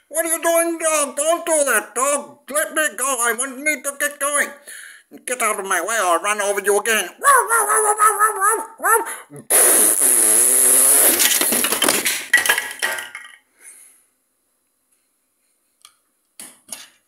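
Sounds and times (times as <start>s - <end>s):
mouth raspberry blast: 7.2s - 11.7s
plastic blocks clattering: 11.2s - 13.4s.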